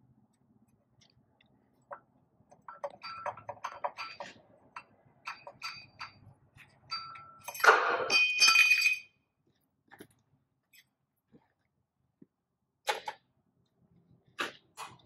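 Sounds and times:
metal fasteners clinking: 2.6 - 9.1
ringing metal clatter: 2.7 - 4.4, 5.3 - 6.3, 6.9 - 9.1.

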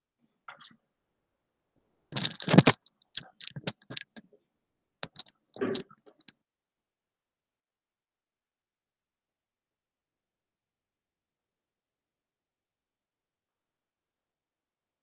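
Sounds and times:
computer keyboard typing: 2.2 - 4.2, 5.0 - 6.3.

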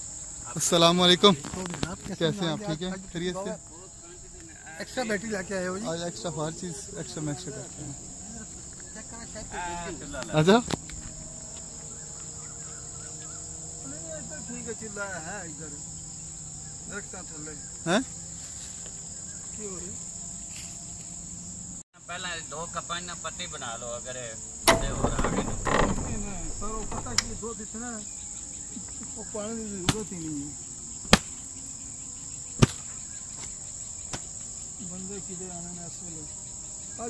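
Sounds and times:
insects chorus: 0.0 - 37.0
handling noise: 24.7 - 27.4
sharp knocks: 24.7 - 27.4.

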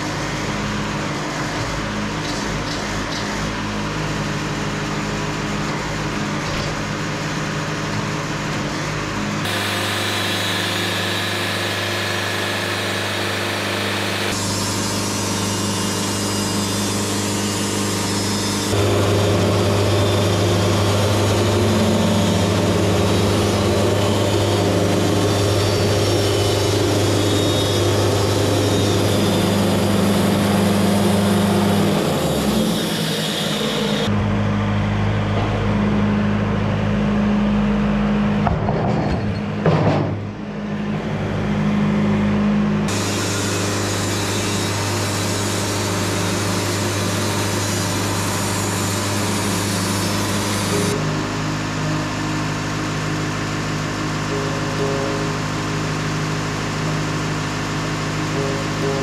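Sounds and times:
band sawmill cutting log: 0.0 - 38.0, 41.1 - 59.0.

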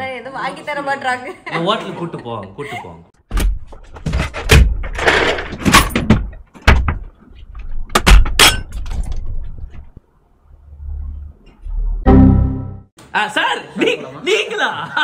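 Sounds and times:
loud knocks bangs and clatter: 3.3 - 7.1.

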